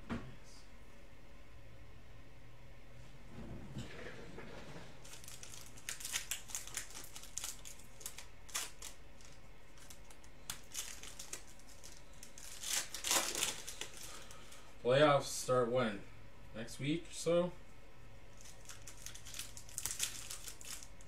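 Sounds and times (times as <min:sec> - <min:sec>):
foil wrapper tearing and crinkling: 0:05.0 - 0:14.6, 0:18.4 - 0:21.0.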